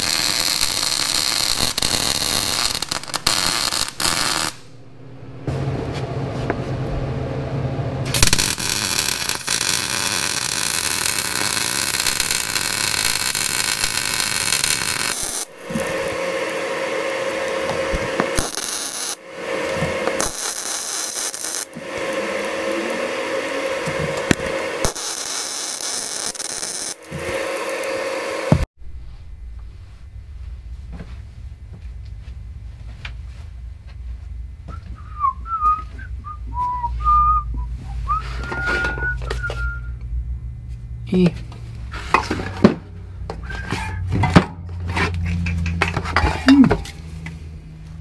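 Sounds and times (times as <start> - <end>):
welder crackling hiss: 0.0 - 4.7, 8.1 - 28.7
power grinder whining: 8.1 - 28.6.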